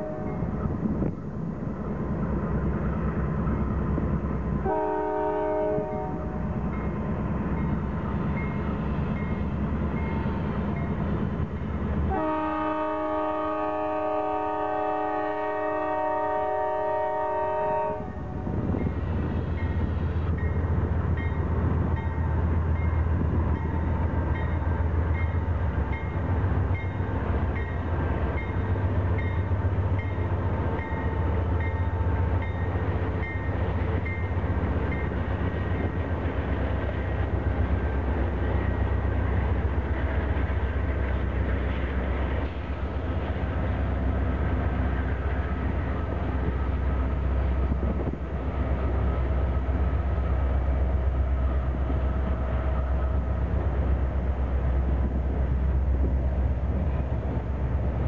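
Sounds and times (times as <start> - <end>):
locomotive horn: 0.0 - 0.4, 4.6 - 6.5, 12.1 - 18.5
diesel locomotives rumbling: 0.0 - 58.0
train wheels rolling on rails: 0.0 - 58.0.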